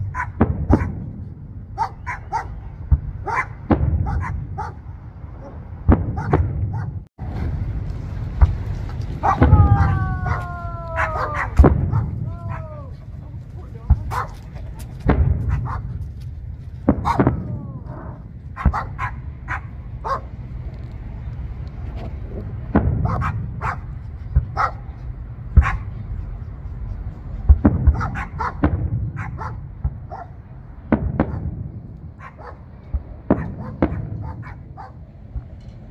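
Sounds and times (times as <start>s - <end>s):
fireworks bangs and pops: 0.0s - 1.7s, 2.7s - 4.6s, 5.8s - 19.0s, 20.4s - 24.7s, 27.4s - 30.1s, 30.7s - 35.9s
low rumble: 0.0s - 35.9s.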